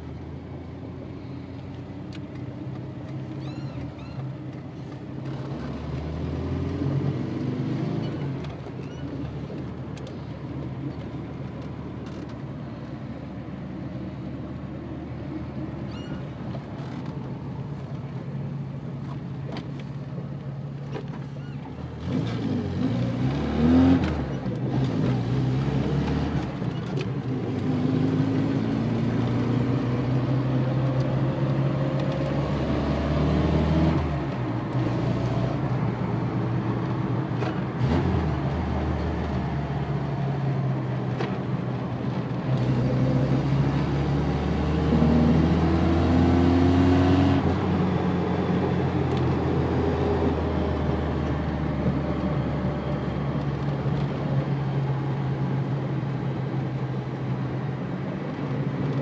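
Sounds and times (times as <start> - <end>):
car engine accelerating: 0.0 - 59.0
road noise: 0.0 - 59.0.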